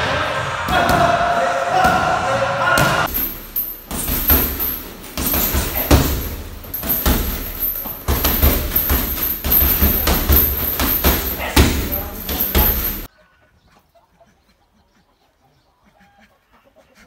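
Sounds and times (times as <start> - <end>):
punches thudding on heavy bag: 2.8 - 13.1.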